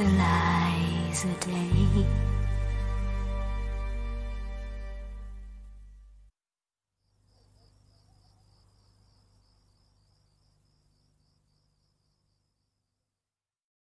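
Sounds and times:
crickets chirping: 0:00.0 - 0:03.8, 0:07.0 - 0:13.2.

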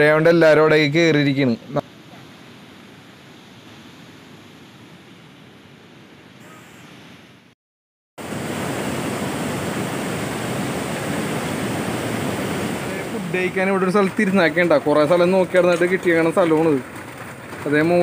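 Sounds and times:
fast-flowing river: 0:08.2 - 0:16.8
heavy rain: 0:08.2 - 0:18.0.

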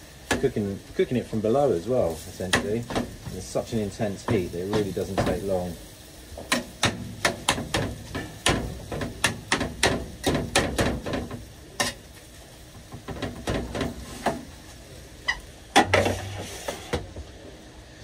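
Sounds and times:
metal spatula scraping metal tray: 0:15.8 - 0:17.0.

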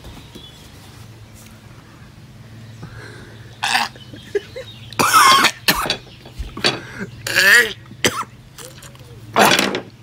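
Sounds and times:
man retching: 0:03.6 - 0:04.0, 0:05.0 - 0:06.1, 0:07.2 - 0:09.8.

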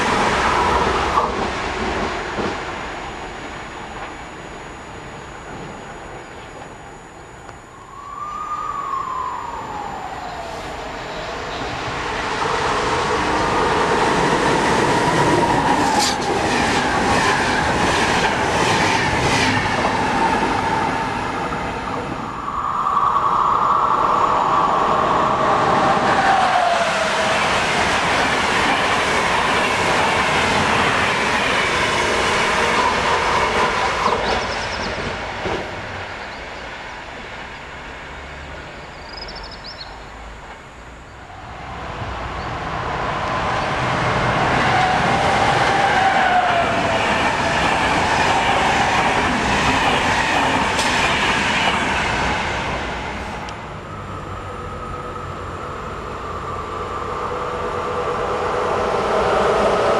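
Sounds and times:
train rolling rumble: 0:00.0 - 0:04.6, 0:08.6 - 0:59.9
whining tone sliding down: 0:03.1 - 0:12.4.

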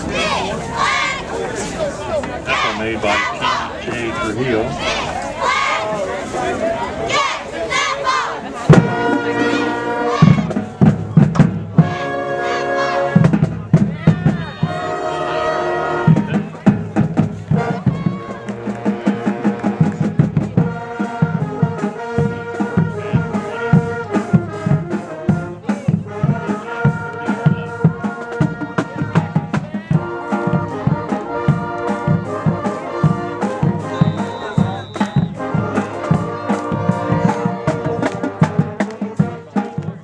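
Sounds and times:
upbeat brass music with drum beat: 0:08.6 - 0:40.0.

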